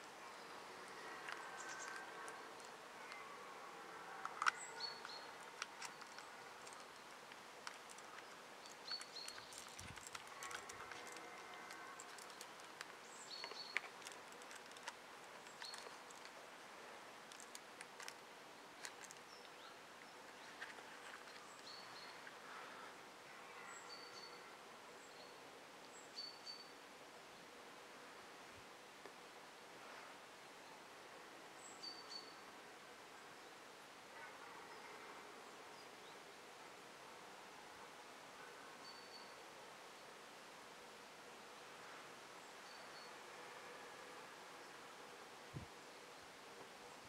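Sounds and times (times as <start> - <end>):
faint bird chirps: 19.3 - 26.8, 31.6 - 32.5, 38.4 - 39.4.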